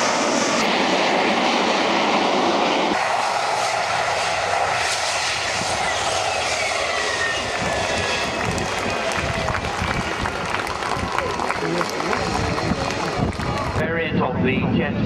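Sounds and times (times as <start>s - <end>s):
jet engine roaring: 0.0s - 15.0s
high whine falling in pitch: 2.8s - 11.3s.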